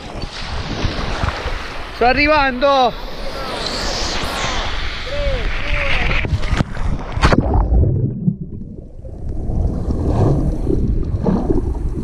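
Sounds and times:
muffled underwater rumble and gurgling: 5.2 - 12.0
sea water splashing: 6.3 - 12.0.

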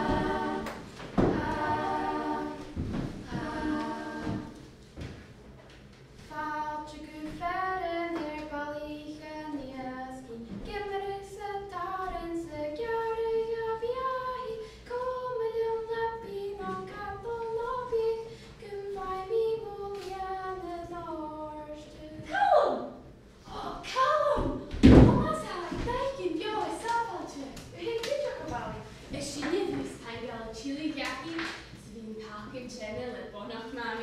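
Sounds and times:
girl singing unaccompanied: 1.2 - 4.6, 6.2 - 22.4.

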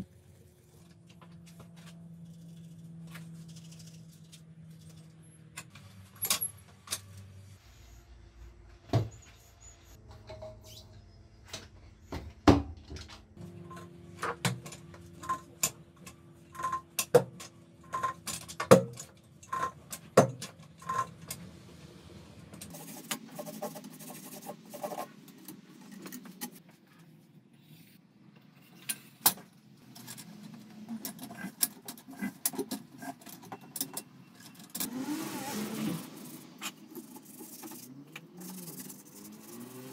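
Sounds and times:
scraping and rubbing: 22.7 - 29.2, 35.1 - 39.9.

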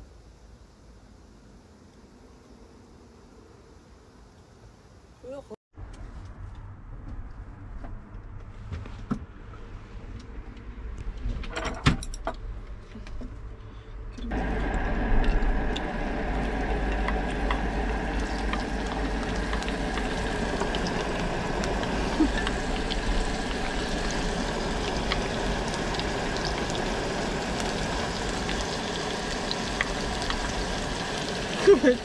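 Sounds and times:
onions sizzling on a griddle: 16.0 - 32.0.

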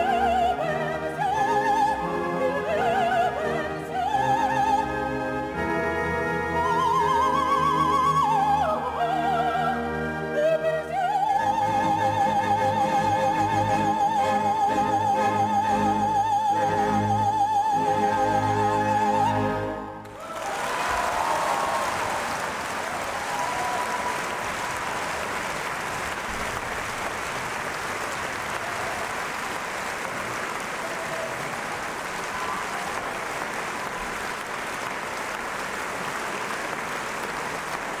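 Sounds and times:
audience applauding: 20.0 - 38.0.

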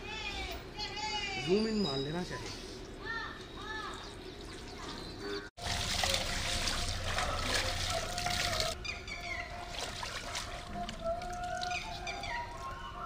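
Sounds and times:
water running into a trough: 5.6 - 8.8
birds chirping: 6.9 - 9.8, 10.7 - 13.0.

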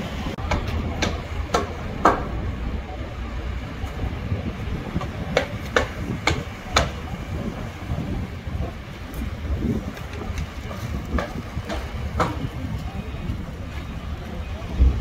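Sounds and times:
low rumble of road traffic: 0.0 - 15.0
hammer blows on timber: 0.4 - 2.5, 4.8 - 8.8, 9.7 - 12.8.

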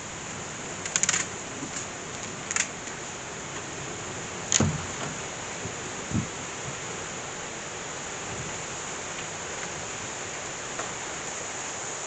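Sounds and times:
heavy rain falling: 0.0 - 12.0
sharp clicks: 0.8 - 1.3
knock with low thud: 4.6 - 6.8.

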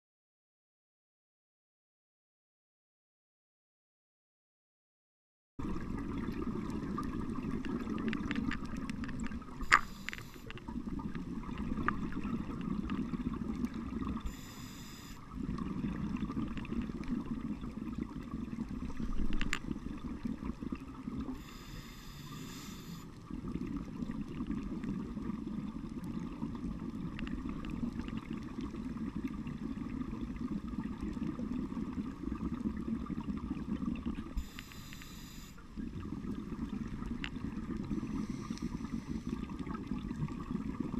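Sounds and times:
bubbling exhales underwater: 5.6 - 40.9
hissing regulator inhale: 9.6 - 10.6, 14.2 - 15.2, 21.3 - 23.2, 34.4 - 35.6, 37.9 - 39.5.

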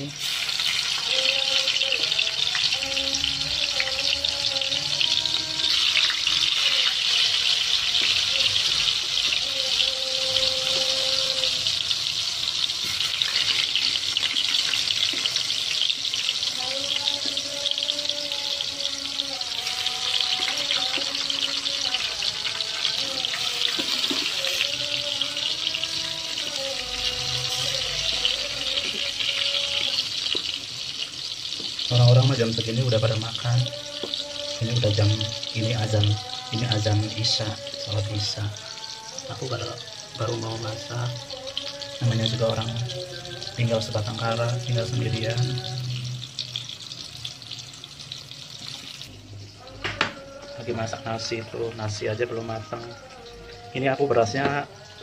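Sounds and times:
food deep-frying in oil: 0.0 - 55.0
distant chanted call to prayer: 31.9 - 46.2, 49.5 - 55.0.

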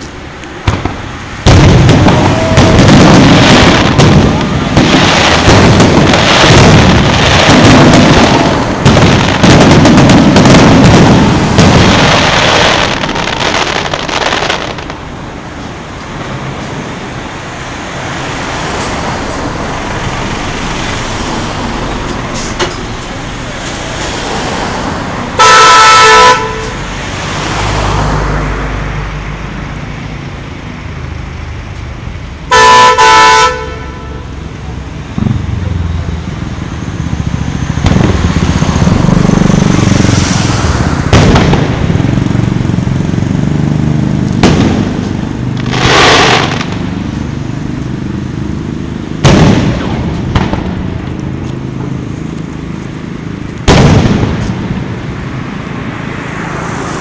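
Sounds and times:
firework crackling: 0.0 - 26.8, 34.4 - 55.8
road traffic hiss: 0.0 - 57.0
truck rumbling past: 0.0 - 57.0
firework booms: 0.6 - 15.1, 39.9 - 42.3, 44.2 - 47.1, 49.2 - 51.2, 53.6 - 55.0
loud vehicle horn: 2.0 - 2.9, 25.4 - 26.9, 32.5 - 34.5.

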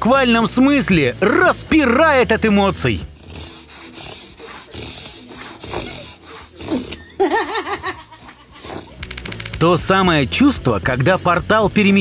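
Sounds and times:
dog breathy excited noises: 3.2 - 7.0
dog whining: 3.2 - 7.2.

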